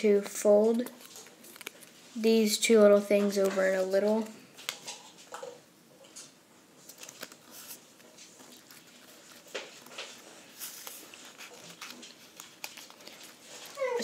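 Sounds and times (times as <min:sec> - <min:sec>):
paper rustling and crackling: 0:00.4 - 0:05.3, 0:06.8 - 0:14.0.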